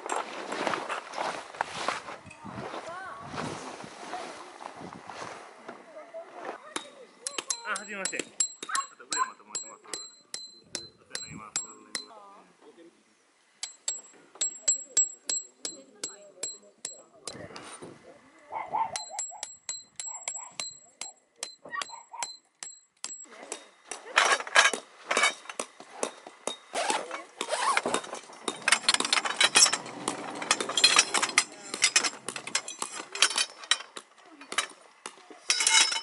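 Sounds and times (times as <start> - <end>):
tent poles clanking and rattling: 0.0 - 2.5, 6.6 - 12.2, 18.9 - 36.0.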